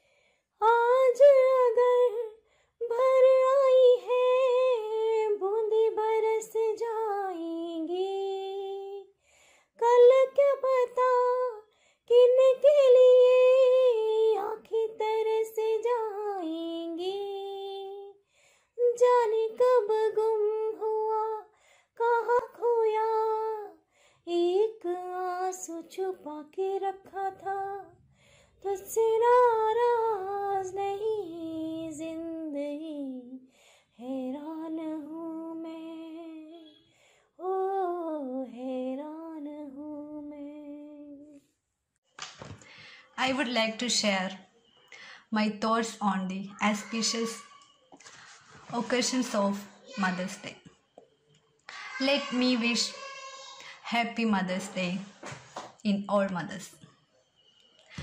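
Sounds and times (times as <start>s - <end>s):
breaths between phrases: 42.6s - 43.2s, 44.9s - 45.4s, 46.9s - 50.2s, 52.9s - 54.0s.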